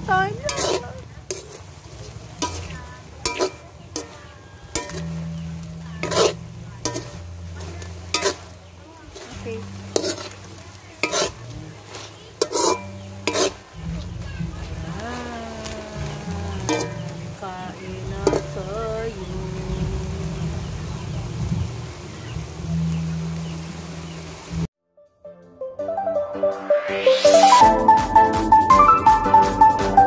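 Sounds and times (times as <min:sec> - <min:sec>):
light sizzle: 0:00.0 - 0:24.7
utensil scraping metal pan: 0:00.3 - 0:19.0.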